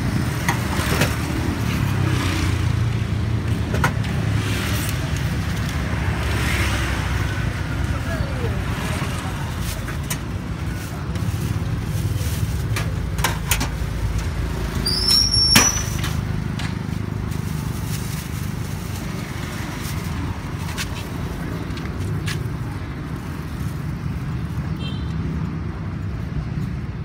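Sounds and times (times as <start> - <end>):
traffic rumbling: 0.0 - 27.0
brief high squeal: 14.8 - 16.0.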